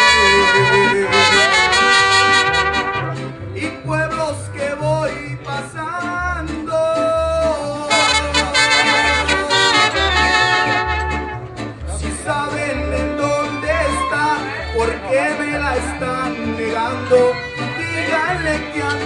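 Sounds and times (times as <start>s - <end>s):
trumpets holding notes: 0.0s - 3.3s, 7.9s - 11.6s
guitar strumming: 0.0s - 19.0s
walking bass line: 0.0s - 19.0s.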